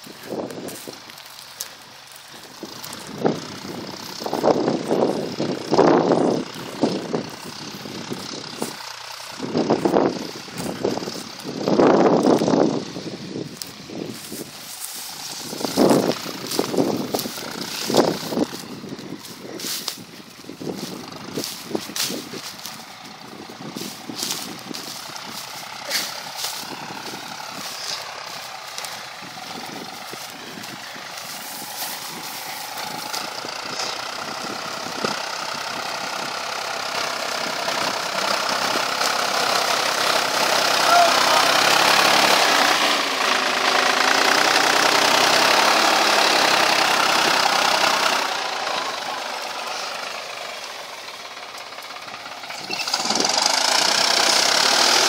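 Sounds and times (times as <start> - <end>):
diesel tractor engine: 0.0 - 55.0
sharp clicks and crackles: 23.8 - 34.0.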